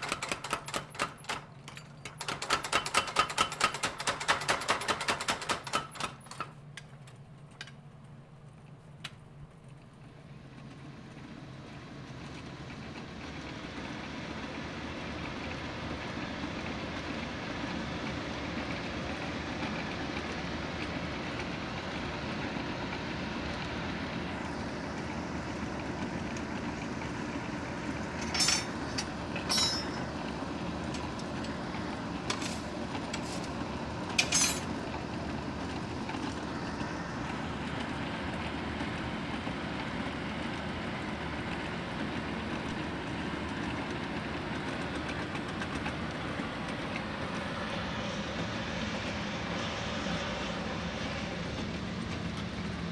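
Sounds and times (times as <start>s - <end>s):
metallic clinks and scrapes: 28.2s - 28.7s, 29.4s - 30.0s, 34.2s - 34.7s.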